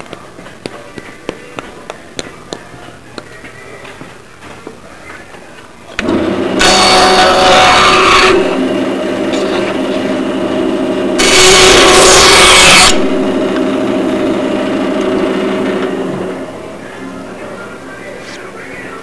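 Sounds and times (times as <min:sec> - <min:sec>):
power tool motor humming: 0:06.0 - 0:16.4
wood being cut by power tool: 0:06.0 - 0:16.4.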